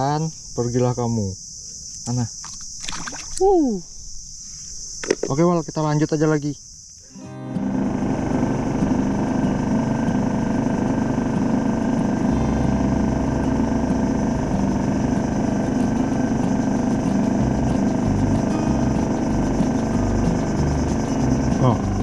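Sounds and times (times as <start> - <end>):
outboard motor droning: 7.2 - 22.0.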